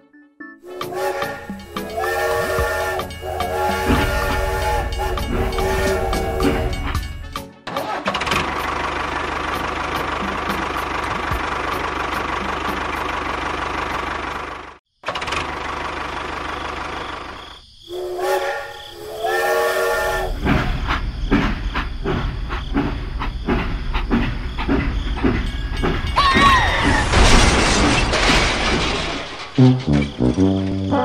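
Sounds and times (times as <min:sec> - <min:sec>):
steam train whistle: 0:00.6 - 0:07.4, 0:17.9 - 0:20.5
train chuffing and clattering: 0:00.7 - 0:07.4, 0:08.2 - 0:14.8, 0:15.4 - 0:31.0.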